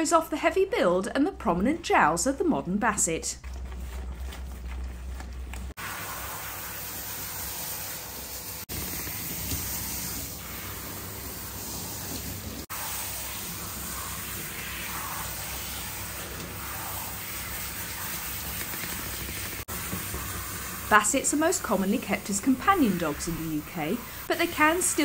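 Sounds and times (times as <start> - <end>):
shower sprayer water splashing: 5.6 - 25.0.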